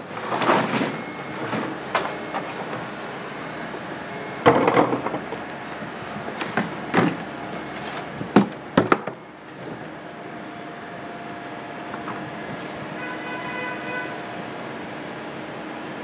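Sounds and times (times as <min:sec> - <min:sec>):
rubbish rustling: 0:00.1 - 0:02.8.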